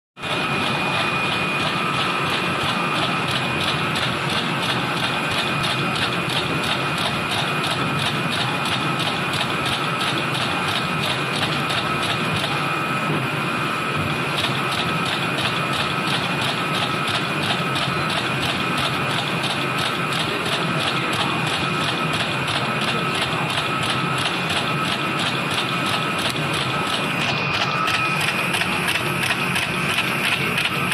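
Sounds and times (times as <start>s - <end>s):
machine whirr: 0.2s - 30.9s
machine mechanical ticking: 0.6s - 12.5s, 14.4s - 30.9s
high whine: 22.4s - 30.9s.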